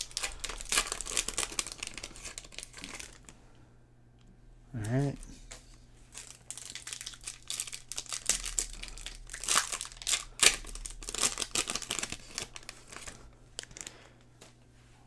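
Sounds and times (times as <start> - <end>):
foil wrapper crinkling and tearing: 0.0 - 3.3, 6.1 - 14.2.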